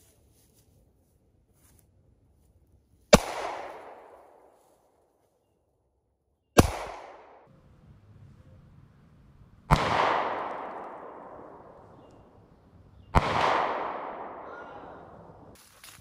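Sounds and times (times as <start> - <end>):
handgun shots with echo: 3.2 - 4.3, 6.6 - 7.4, 9.7 - 12.1, 13.1 - 14.9.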